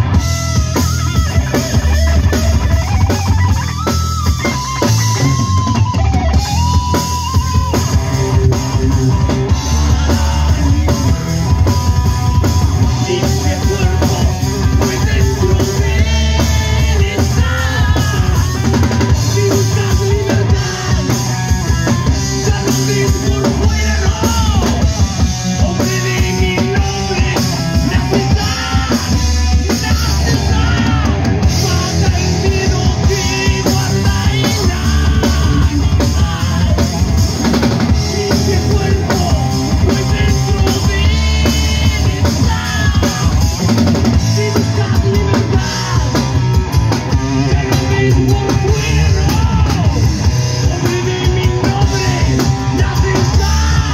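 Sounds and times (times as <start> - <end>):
drum kit: 0.0 - 53.9
electric bass: 0.0 - 53.9
electric guitar: 0.0 - 53.9
man singing: 4.3 - 53.9.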